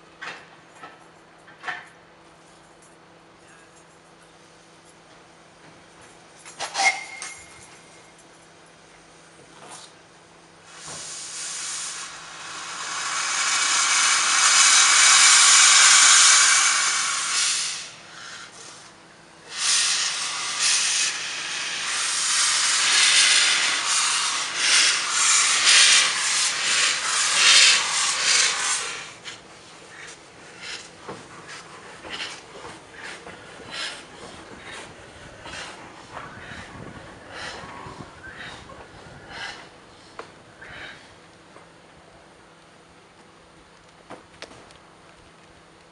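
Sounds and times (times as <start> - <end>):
steam locomotive hissing steam: 6.6 - 8.0, 10.5 - 41.2
locomotive steam beats: 10.5 - 41.7.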